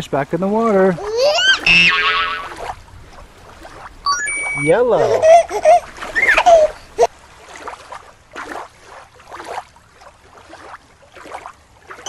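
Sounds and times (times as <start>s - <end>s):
water swishing: 0.4s - 12.0s
short sliding tone: 1.6s - 2.0s, 4.1s - 4.8s.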